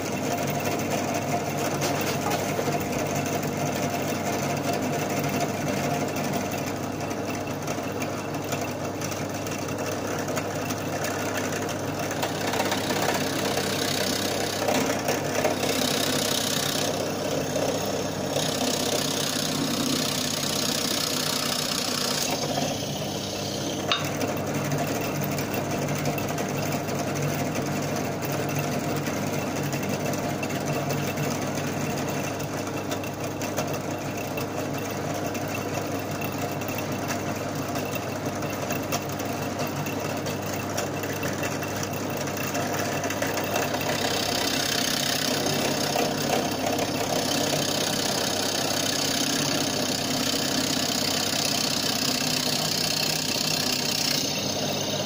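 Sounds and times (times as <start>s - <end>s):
drill press motor running: 0.0s - 55.0s
drill bit cutting wood: 12.1s - 24.0s, 43.7s - 55.0s.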